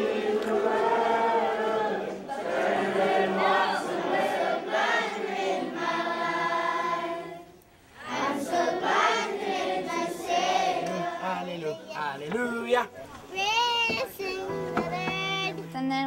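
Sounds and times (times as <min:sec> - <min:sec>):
children singing together: 0:00.0 - 0:12.2.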